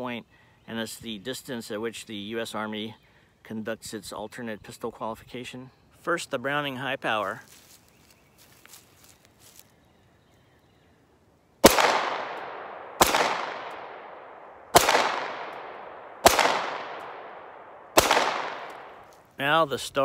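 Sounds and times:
pistol shots with echo: 0:11.6 - 0:19.0.

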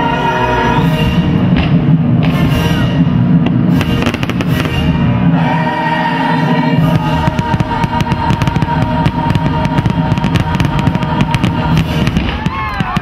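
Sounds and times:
music: 0:00.0 - 0:13.0
fireworks bursting and crackling: 0:01.5 - 0:05.4, 0:06.8 - 0:13.0.

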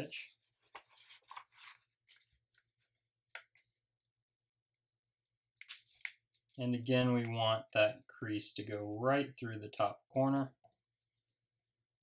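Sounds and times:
paper rustling while folded: 0:00.3 - 0:03.0.

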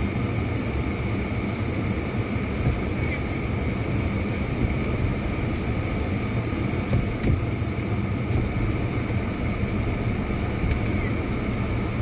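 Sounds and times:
faint high whine: 0:00.0 - 0:06.9
low vehicle rumble: 0:00.0 - 0:12.0.

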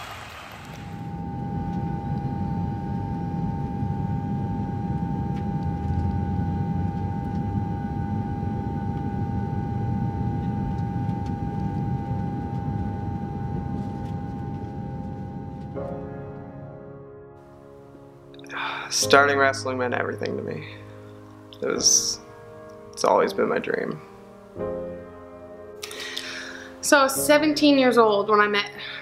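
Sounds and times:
vehicle rumbling in motion: 0:00.0 - 0:15.8
steady high hum: 0:00.4 - 0:16.8.

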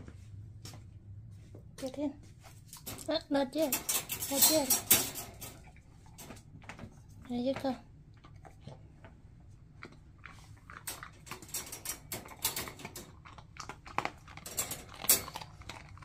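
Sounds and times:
dog chewing crunchy treat: 0:07.9 - 0:16.0.

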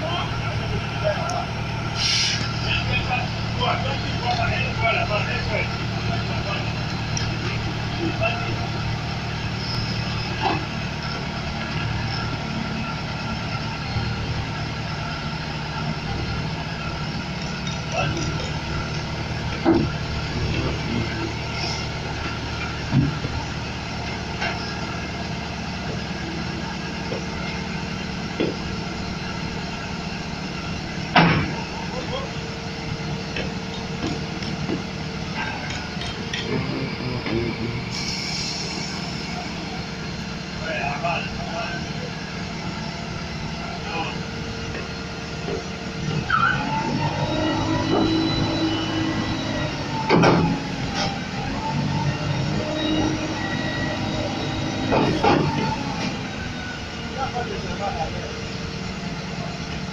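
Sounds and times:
diesel engine running at low revs: 0:00.0 - 0:59.9.

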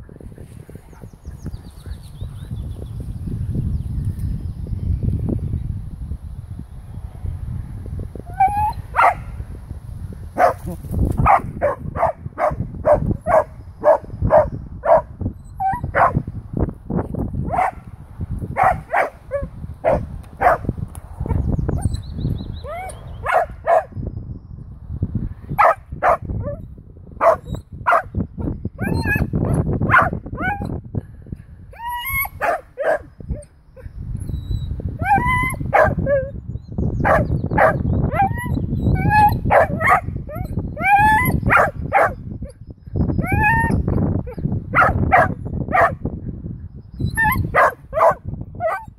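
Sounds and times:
dog whining yelps: 0:08.3 - 0:09.1, 0:13.3 - 0:16.2, 0:22.6 - 0:23.9, 0:28.8 - 0:30.7, 0:31.7 - 0:33.4, 0:34.4 - 0:36.3, 0:37.1 - 0:42.2, 0:43.2 - 0:43.9, 0:47.0 - 0:48.9
dog barking: 0:08.9 - 0:09.3, 0:10.4 - 0:15.1, 0:15.9 - 0:16.2, 0:17.5 - 0:17.8, 0:18.6 - 0:20.7, 0:23.2 - 0:23.9, 0:25.6 - 0:26.6, 0:27.2 - 0:28.1, 0:28.8 - 0:30.6, 0:32.4 - 0:33.1, 0:35.0 - 0:36.3, 0:37.0 - 0:42.2, 0:44.7 - 0:46.0, 0:47.2 - 0:48.9.

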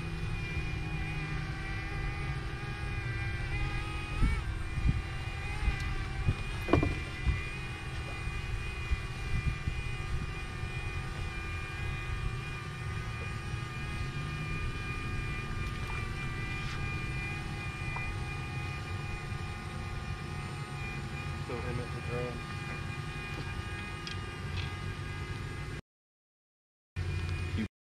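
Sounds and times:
drone propeller whine: 0:00.0 - 0:25.8, 0:27.0 - 0:27.7.

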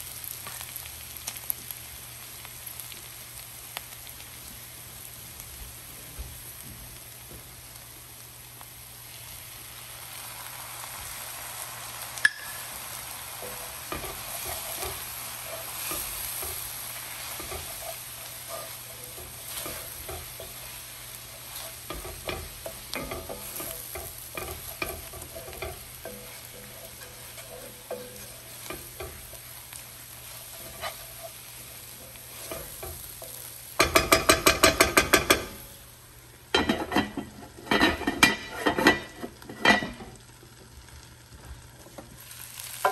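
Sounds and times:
vegetables sizzling in oil: 0:00.0 - 0:42.9
wooden spoon scraping pan: 0:13.4 - 0:33.4.

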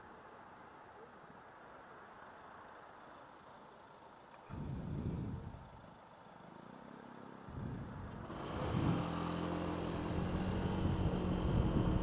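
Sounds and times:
road and wind noise: 0:00.0 - 0:12.0
scooter engine pulling away: 0:08.1 - 0:12.0.

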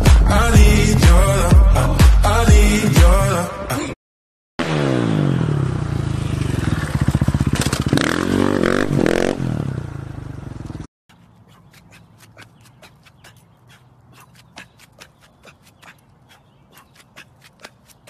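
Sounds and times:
pop song: 0:00.0 - 0:04.0
motorcycle engine revving: 0:04.6 - 0:10.9.

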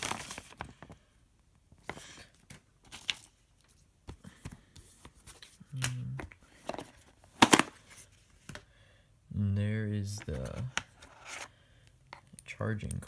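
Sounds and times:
paper leaflet rustling: 0:00.0 - 0:01.0.

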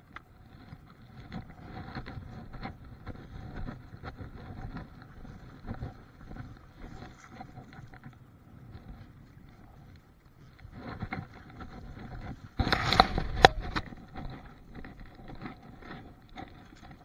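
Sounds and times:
water lapping around boat: 0:00.0 - 0:17.0
wind rumbling on microphone: 0:00.0 - 0:17.0.

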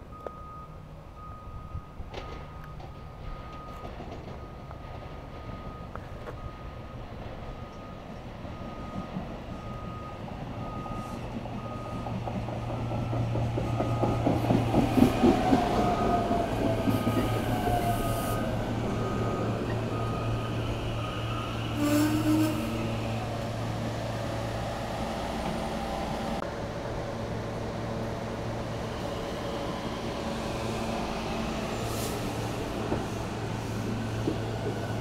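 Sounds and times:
electric train hum and wheel noise: 0:00.0 - 0:35.0.

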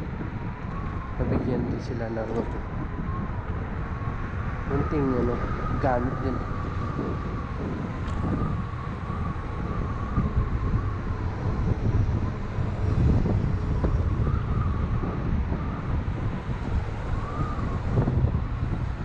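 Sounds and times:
high whine of electric scooter: 0:00.0 - 0:19.0
tyres rumbling on road: 0:00.0 - 0:19.0
wind rushing over microphone: 0:00.0 - 0:19.0.

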